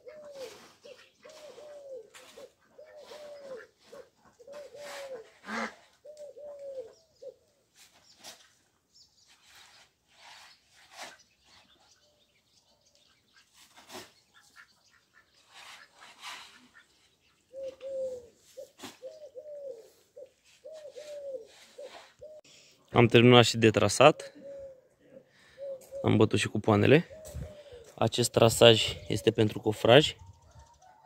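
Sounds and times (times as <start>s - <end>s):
pigeon cooing: 0.0s - 7.6s, 15.8s - 22.7s, 24.1s - 28.0s, 28.8s - 31.0s.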